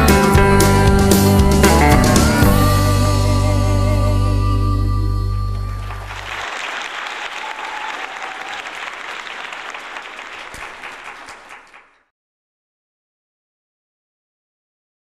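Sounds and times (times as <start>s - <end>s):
congregation applauding: 5.8s - 12.1s.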